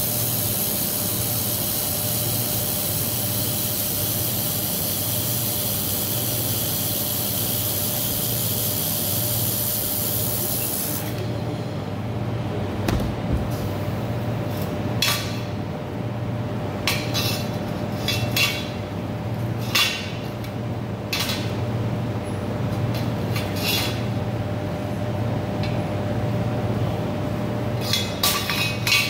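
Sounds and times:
low machine hum: 9.7 - 23.4.

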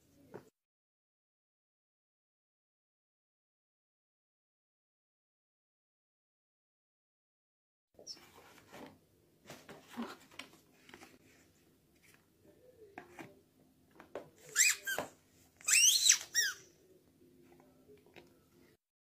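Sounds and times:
rustling and handling of toys: 8.0 - 16.6
rubber dog toy squeaking: 14.5 - 16.6.

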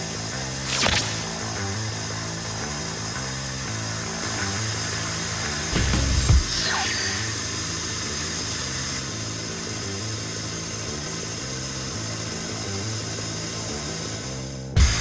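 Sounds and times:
lathe machining steel: 1.9 - 9.8.

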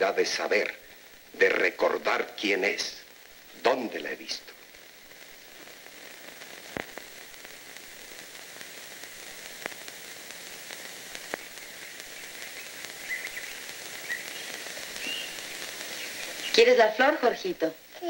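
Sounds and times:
faint high-pitched sounds: 0.0 - 18.0
film soundtrack hiss: 0.0 - 18.0
clicks and crackles: 4.5 - 16.7.

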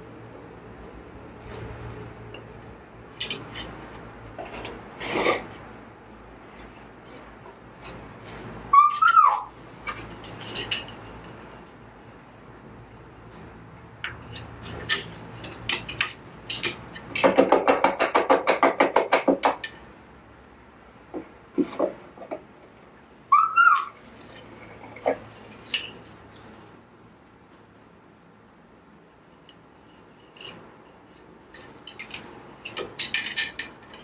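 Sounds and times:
cockatoo whistled call: 8.7 - 9.5, 23.3 - 23.9
beak and feet knocking on wood: 17.1 - 19.6.

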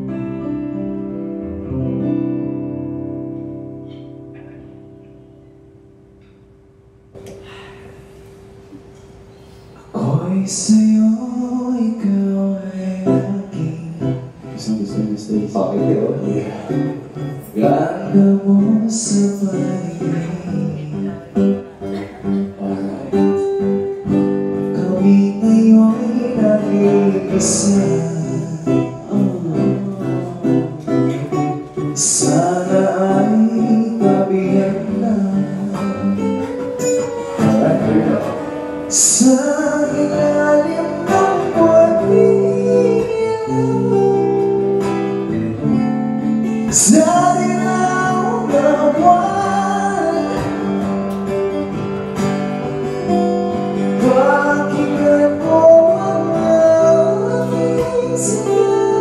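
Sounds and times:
acoustic guitar: 0.0 - 59.0
people singing into microphones: 32.0 - 44.4, 46.7 - 51.2, 53.9 - 59.0.

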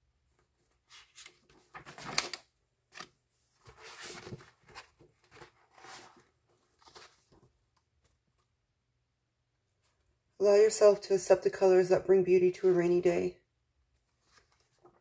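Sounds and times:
rustling and handling noises: 0.2 - 8.7, 13.9 - 15.0.

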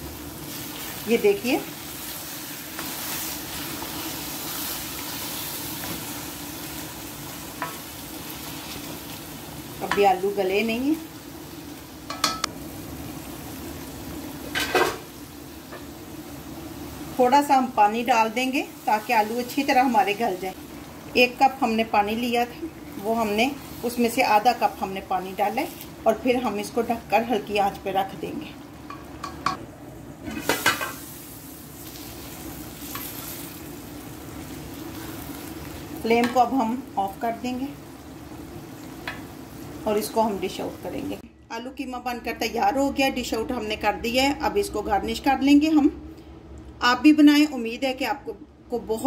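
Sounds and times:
meat and potatoes sizzling: 0.0 - 41.2
spoon stirring and scraping pan: 1.8 - 9.1, 30.2 - 31.1, 32.8 - 33.6
spoon clinking against pan: 12.1 - 12.5.

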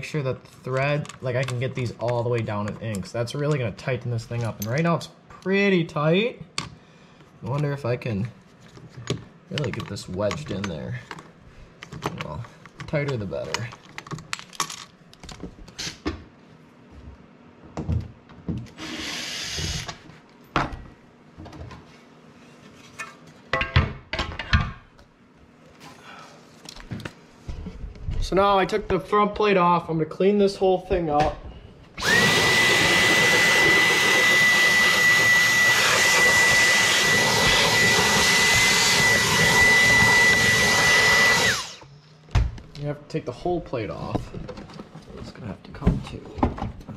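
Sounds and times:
cordless drill running: 18.8 - 20.0, 32.0 - 41.9
handheld vacuum whining: 18.8 - 20.0, 32.0 - 41.9.

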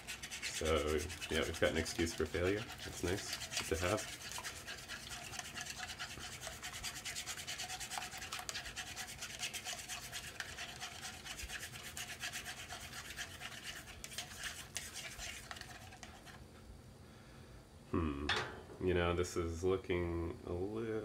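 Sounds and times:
chopsticks scraping egg in pan: 0.0 - 16.4.

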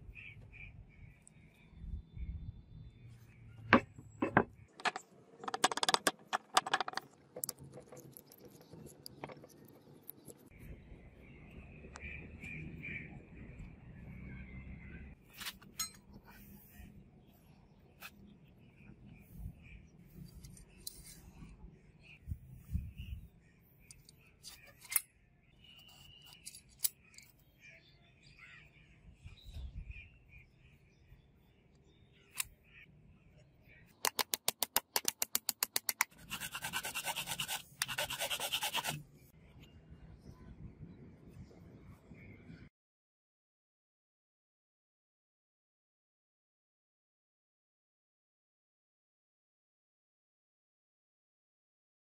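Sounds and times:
wooden scabbard knocks: 3.7 - 7.0.

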